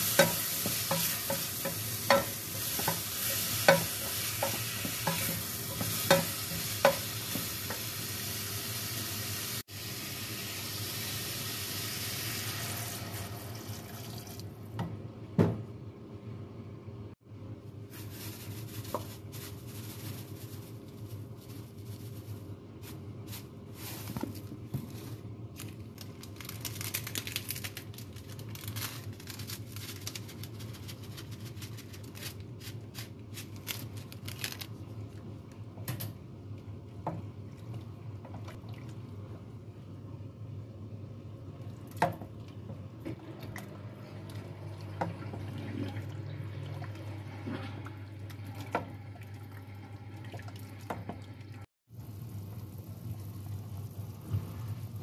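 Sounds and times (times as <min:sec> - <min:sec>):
packet crackling: 0:25.5 - 0:34.8.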